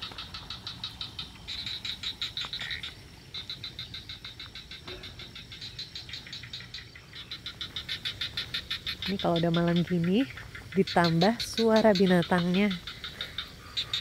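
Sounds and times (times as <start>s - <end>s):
frogs calling: 0.0s - 14.0s.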